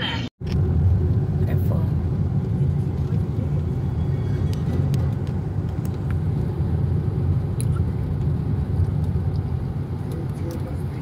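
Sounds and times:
car interior rumble: 0:00.0 - 0:11.0.

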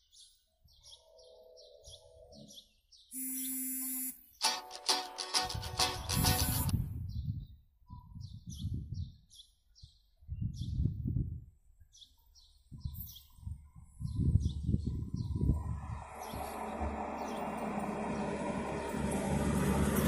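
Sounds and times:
small birds chirping: 0:00.0 - 0:04.6, 0:06.3 - 0:11.1, 0:11.7 - 0:19.0
wind buffeting microphone: 0:05.5 - 0:11.7, 0:12.6 - 0:20.0.

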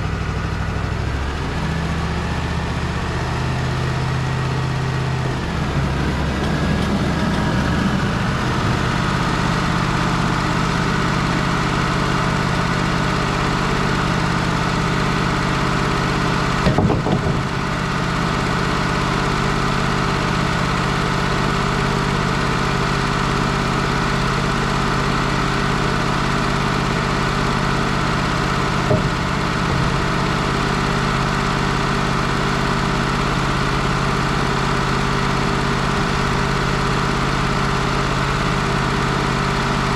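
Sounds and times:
sawmill engine running: 0:00.0 - 0:39.9
loud clunk: 0:16.6 - 0:17.5, 0:28.8 - 0:30.0.

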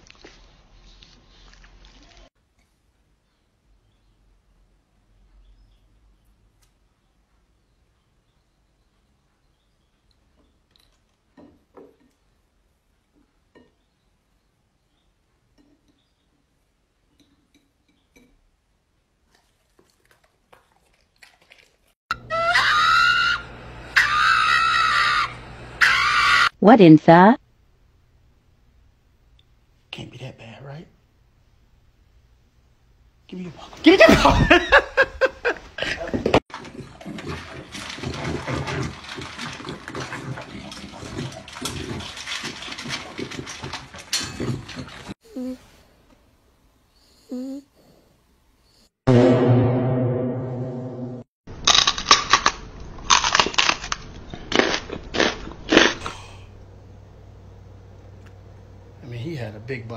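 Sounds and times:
dog high-pitched crying: 0:22.1 - 0:26.6
puppy crunching kibble: 0:36.5 - 0:45.1.

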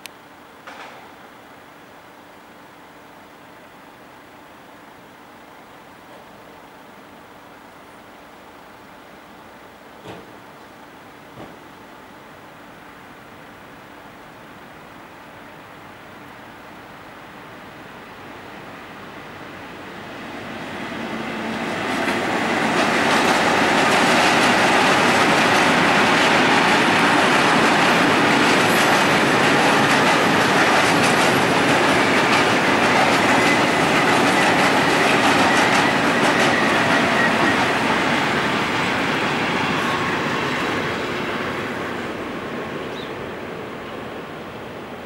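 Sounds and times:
diesel locomotive engine: 0:00.2 - 0:45.0
train wheels running over rails: 0:00.6 - 0:01.2, 0:10.0 - 0:10.5, 0:11.2 - 0:11.8, 0:20.0 - 0:45.0.

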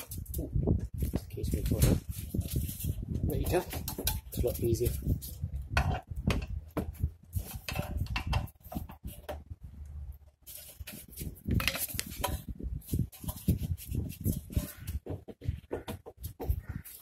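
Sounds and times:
metal clicks and knocks: 0:03.4 - 0:04.6, 0:05.7 - 0:09.5.

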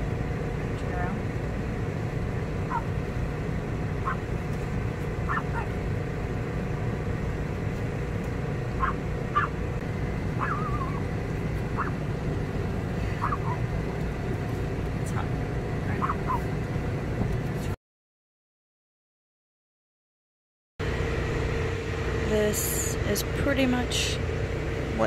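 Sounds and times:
low rumbling background noise: 0:00.0 - 0:17.8, 0:20.8 - 0:25.0
chirp-like animal calls: 0:02.7 - 0:03.0, 0:04.0 - 0:04.3, 0:05.3 - 0:05.8, 0:08.8 - 0:09.6, 0:10.4 - 0:11.0, 0:11.7 - 0:12.0, 0:13.1 - 0:13.7, 0:15.9 - 0:16.5.

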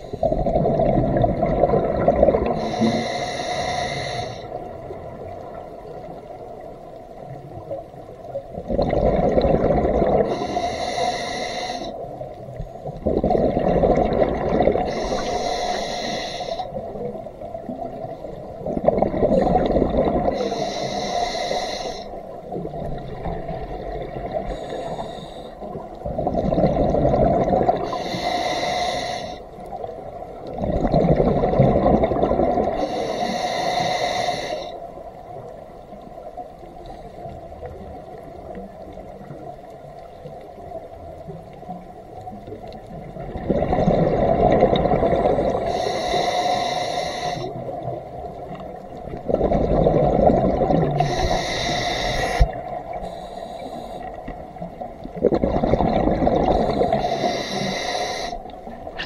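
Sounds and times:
exhalation bubbling underwater: 0:00.2 - 0:02.8, 0:08.6 - 0:10.4, 0:13.0 - 0:15.0, 0:18.6 - 0:20.4, 0:26.0 - 0:27.8, 0:30.5 - 0:32.8, 0:43.0 - 0:45.7, 0:47.6 - 0:51.4, 0:55.0 - 0:57.0
regulator inhalation hiss: 0:02.6 - 0:04.6, 0:10.3 - 0:12.0, 0:14.9 - 0:16.8, 0:20.3 - 0:22.2, 0:24.4 - 0:25.8, 0:27.8 - 0:29.6, 0:32.8 - 0:34.8, 0:45.5 - 0:47.6, 0:51.0 - 0:54.3, 0:56.5 - 0:58.5.

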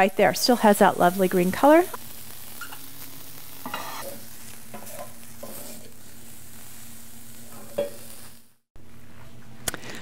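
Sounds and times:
cabbage frying in butter: 0:00.0 - 0:08.6
spatula scraping a pan: 0:03.6 - 0:06.0.

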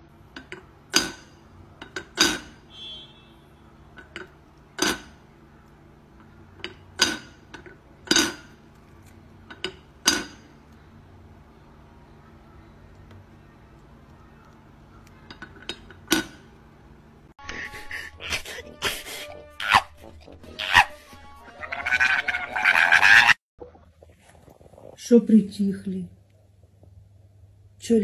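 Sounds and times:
metal kettle lid clinking: 0:00.4 - 0:02.6, 0:04.0 - 0:05.2, 0:06.6 - 0:08.5, 0:09.5 - 0:10.5.

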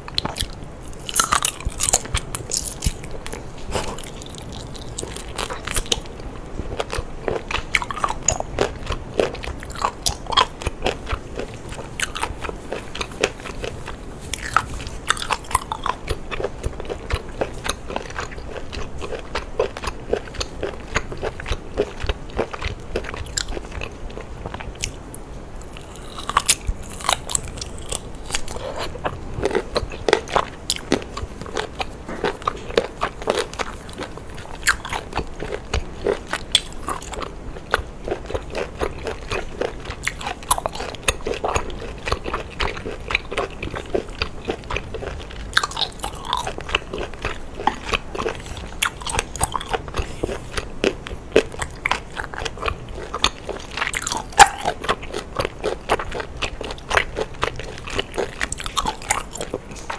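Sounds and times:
person chewing seafood: 0:00.0 - 0:59.9.

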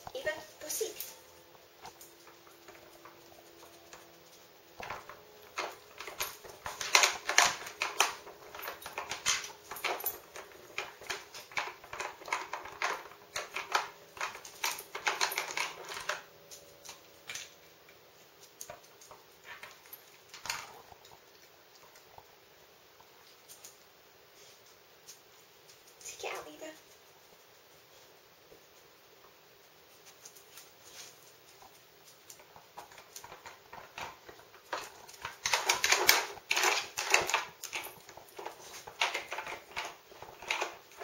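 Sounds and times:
plastic pegs clicking and knocking: 0:32.8 - 0:41.0.

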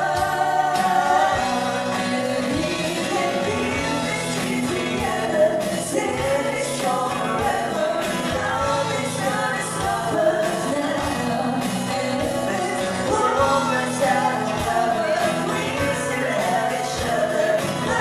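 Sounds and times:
acoustic guitar accompaniment: 0:00.0 - 0:18.0
woman singing into microphone: 0:00.0 - 0:18.0.

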